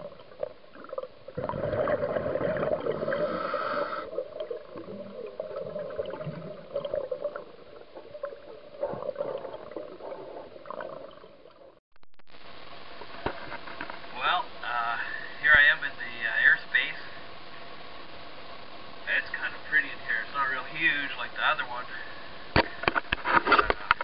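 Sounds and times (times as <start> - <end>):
underwater bubbles gurgling: 0.0 - 11.8.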